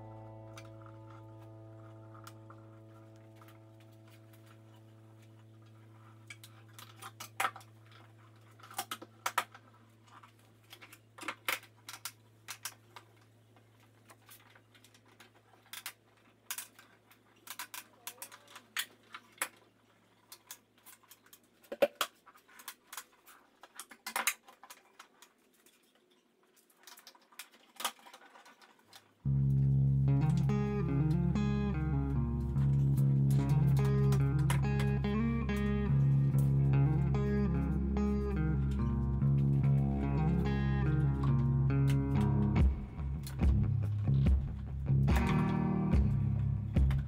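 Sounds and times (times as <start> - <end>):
steady low hum: 29.3 - 47.0.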